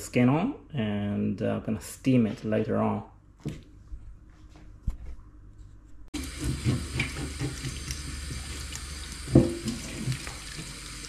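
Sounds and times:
kitchen tap turned on: 6.2 - 11.0
water running into a steel sink: 6.2 - 11.0.

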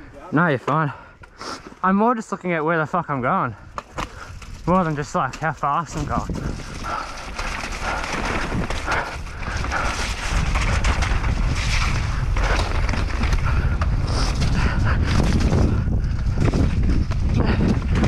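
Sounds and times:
tyres on dirt: 0.2 - 18.0
wind buffeting microphone: 3.4 - 18.0
bike rattling over ground: 3.8 - 18.0.

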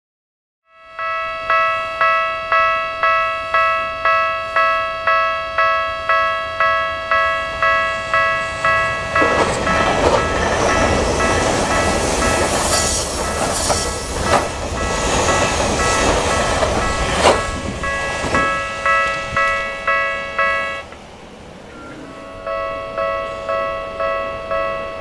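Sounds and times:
level crossing warning bell: 0.7 - 21.0, 21.6 - 25.0
electric train passing: 0.7 - 25.0
wheels clacking over rail joints: 6.6 - 24.7.

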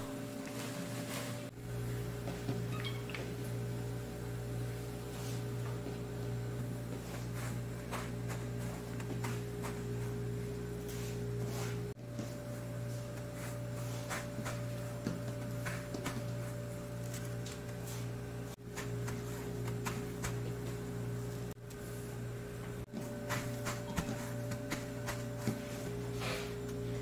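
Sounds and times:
low machine hum: 0.0 - 27.0
dough rustling in breadcrumbs: 0.1 - 1.6, 6.7 - 26.4.

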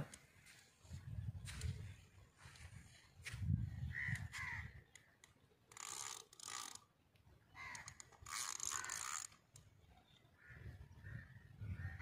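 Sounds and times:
crows cawing: 3.9 - 4.8, 7.6 - 8.1, 8.7 - 9.2, 10.4 - 12.0.

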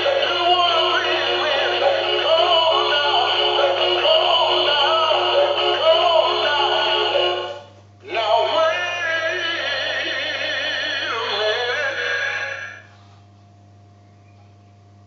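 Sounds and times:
faint steady hum: 0.0 - 15.0
toy playing tinny sung tune: 8.1 - 12.8.

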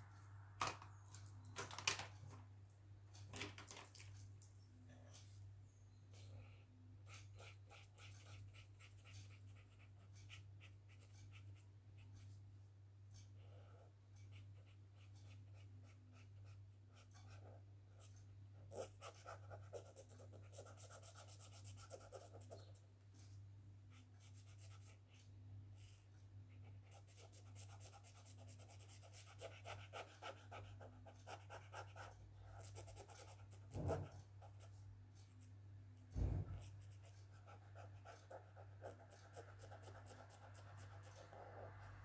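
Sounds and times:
marker scratching on paper: 7.0 - 12.4, 14.3 - 23.3, 26.6 - 35.4, 36.2 - 41.7.

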